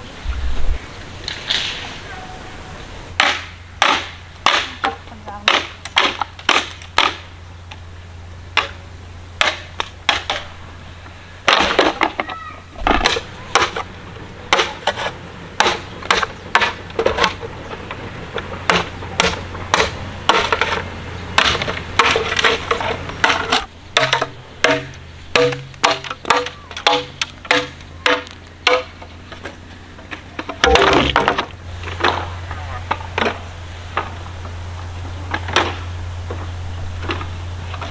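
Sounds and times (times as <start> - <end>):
machete chopping bamboo: 3.2 - 7.3, 8.5 - 8.8, 9.4 - 10.5, 11.4 - 13.9, 14.5 - 17.4, 18.4 - 29.6, 30.4 - 32.3.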